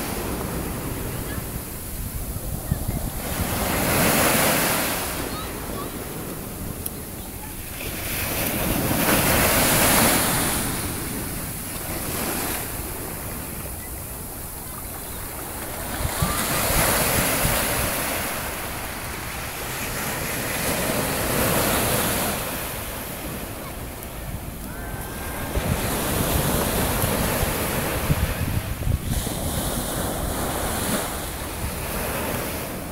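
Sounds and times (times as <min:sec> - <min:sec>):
ocean surf breaking: 0:00.0 - 0:32.9
wind rumbling on microphone: 0:00.0 - 0:32.9.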